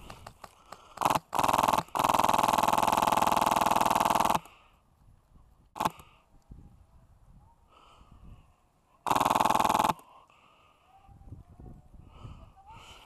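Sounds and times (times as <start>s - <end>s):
airsoft rifle firing bursts: 0.0s - 4.5s, 5.8s - 6.0s, 9.1s - 10.0s.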